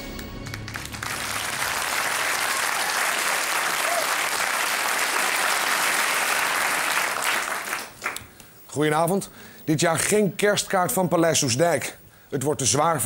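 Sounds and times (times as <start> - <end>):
theme music: 0.0 - 3.4
audience applauding: 0.0 - 8.4.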